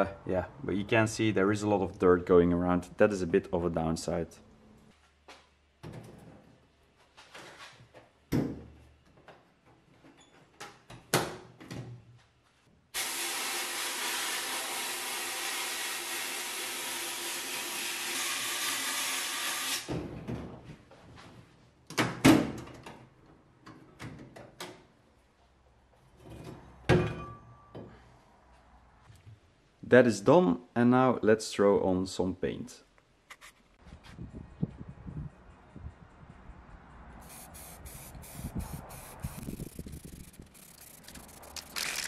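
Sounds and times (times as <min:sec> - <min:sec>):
sandblasting hiss: 0:37.2 - 0:40.3
metal parts clunking: 0:40.5 - 0:42.0.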